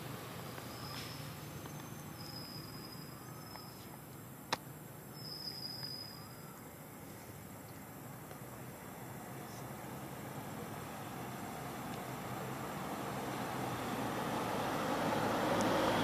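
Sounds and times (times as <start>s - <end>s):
forest ambience: 0.0s - 16.0s
high-pitched insect calls: 0.6s - 4.2s, 5.0s - 6.9s.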